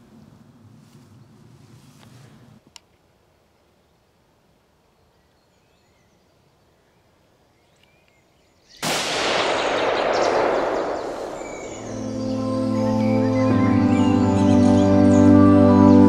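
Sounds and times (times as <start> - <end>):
rifle shot with long echo: 8.8 - 12.8.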